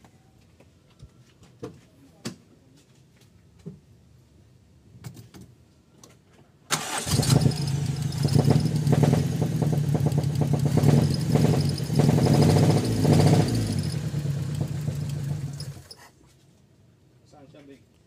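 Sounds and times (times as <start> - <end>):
engine cranking on starter: 6.7 - 15.9.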